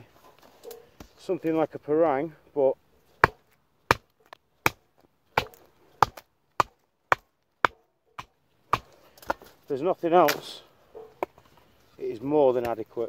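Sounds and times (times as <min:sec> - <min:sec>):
knife chopping into branch: 0:03.2 - 0:04.8, 0:05.4 - 0:09.5.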